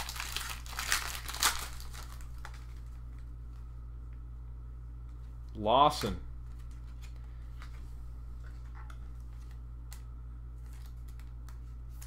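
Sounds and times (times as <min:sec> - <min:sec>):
low hum: 0:00.0 - 0:12.0
trading cards clicking and rustling: 0:08.4 - 0:12.0.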